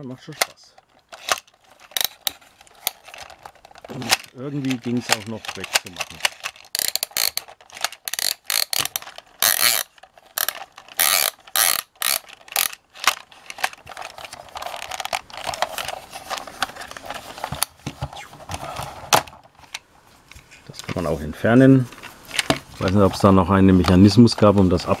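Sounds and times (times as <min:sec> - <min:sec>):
plastic scraping: 0:00.2 - 0:21.2, 0:21.8 - 0:25.0
plastic toy parts clicking: 0:00.4 - 0:17.7.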